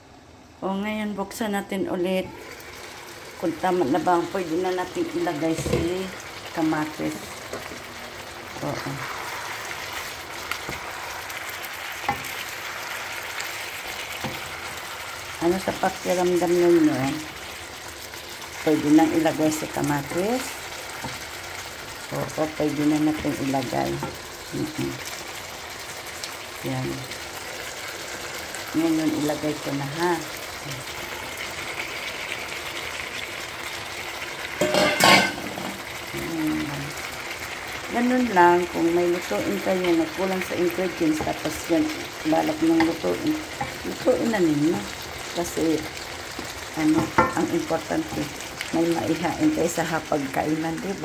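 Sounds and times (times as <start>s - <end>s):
chicken sizzling in a wok: 2.0s - 51.0s
wooden spatula knocking pan: 46.9s - 47.5s.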